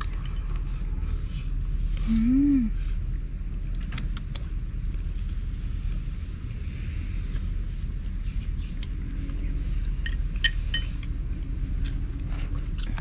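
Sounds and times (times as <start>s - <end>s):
steady low rumble: 0.0s - 13.0s
dishes and utensils clinking: 10.0s - 11.0s.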